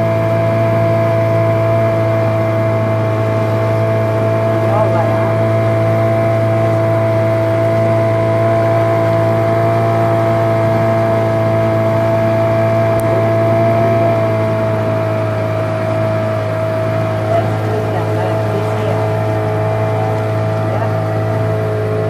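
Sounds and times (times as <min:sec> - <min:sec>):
motorboat engine drone: 0:00.0 - 0:22.0.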